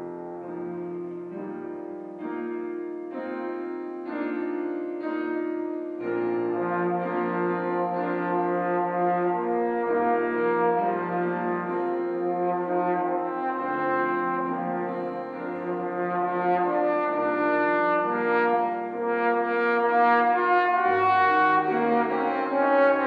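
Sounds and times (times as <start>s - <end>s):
piano accompaniment: 0.0s - 23.0s
trombone playing slow melody: 4.9s - 23.0s.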